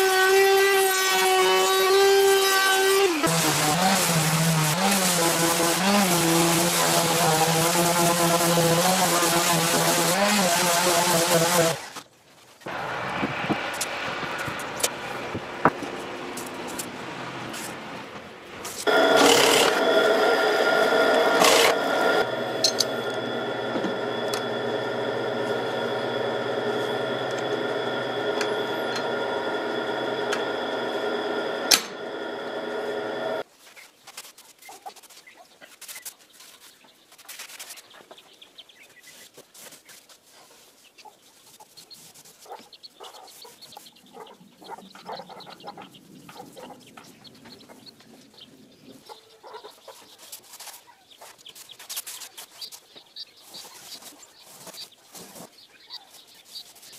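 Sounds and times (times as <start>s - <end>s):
electric hand planer whine: 0.0s - 12.0s, 18.8s - 33.4s
chickens clucking: 42.6s - 50.3s.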